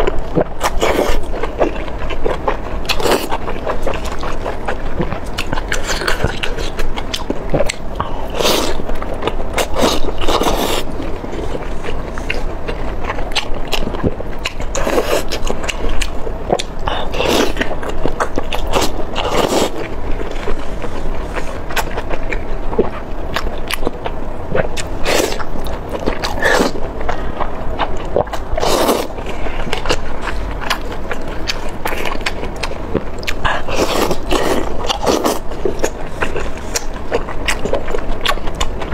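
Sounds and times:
person biting and chewing: 0.0 - 23.9, 24.6 - 38.9.

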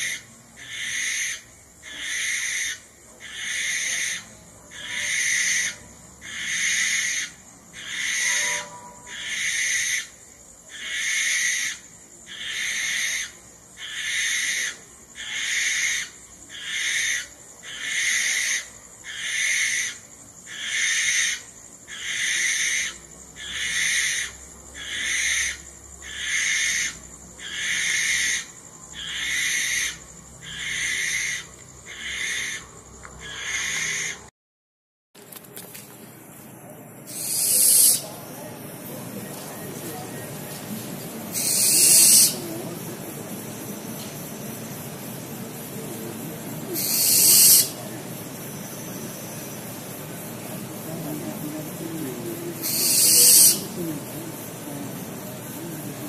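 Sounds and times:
owl hissing screeches: 0.0 - 34.2, 37.1 - 38.2, 41.3 - 42.5, 46.7 - 47.8, 52.5 - 53.8.

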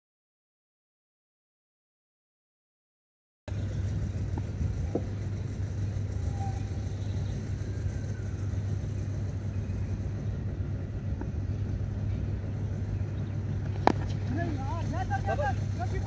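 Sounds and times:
steady low rumble: 3.5 - 16.0.

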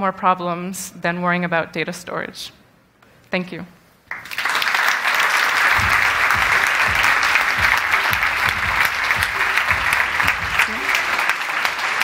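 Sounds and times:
audience applauding: 4.1 - 12.0
low thudding beat: 5.2 - 12.0.

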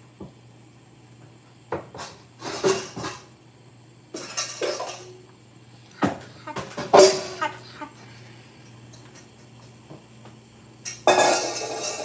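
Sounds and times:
steady low hum: 0.0 - 12.0
cookware clattering: 4.2 - 5.2, 6.5 - 7.5, 10.9 - 12.0.

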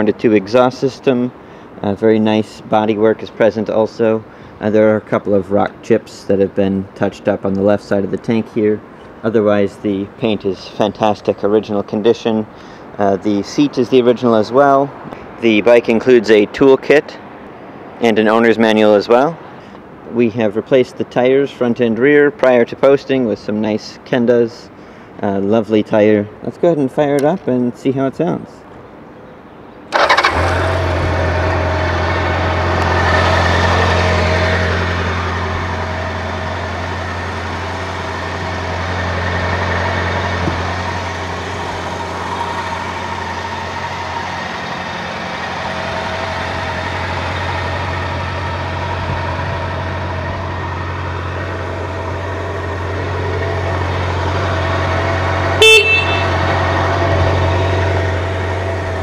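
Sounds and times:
motorcycle engine idling: 30.0 - 59.0
horn beep: 55.6 - 56.4.

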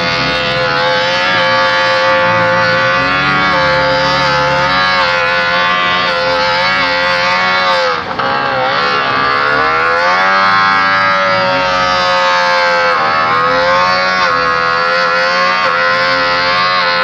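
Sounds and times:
two-stroke engine revving under load: 0.0 - 17.0.

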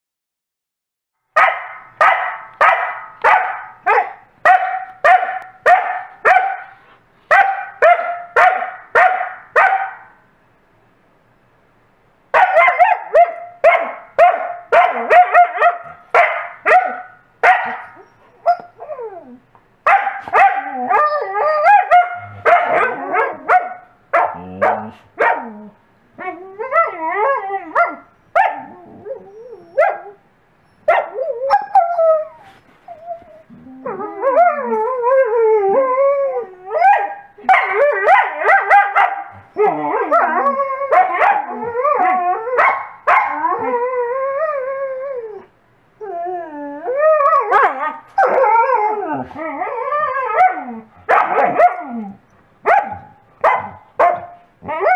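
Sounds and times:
dog barking: 1.4 - 10.2, 12.4 - 18.6, 19.9 - 21.0, 21.6 - 25.6, 27.7 - 28.7, 29.8 - 30.2, 30.9 - 31.7, 36.8 - 39.4, 40.9 - 41.6, 42.6 - 43.4, 50.4 - 52.0, 52.6 - 54.9
dog whining: 17.6 - 19.5, 20.3 - 23.5, 24.4 - 42.6, 43.2 - 52.3, 52.9 - 54.9.

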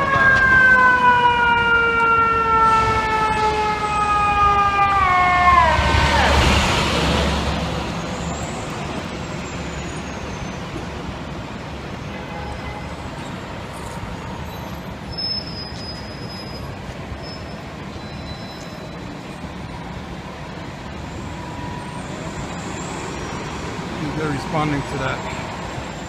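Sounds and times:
steady traffic noise: 0.0 - 26.0
truck engine passing: 5.2 - 11.3.

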